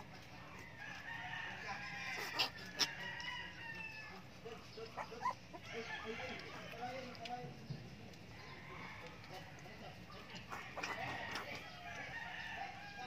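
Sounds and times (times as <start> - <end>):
rooster crowing: 0.6 - 4.2, 5.6 - 6.9, 10.5 - 13.0
puppies squeaking: 1.9 - 3.0, 4.0 - 6.8.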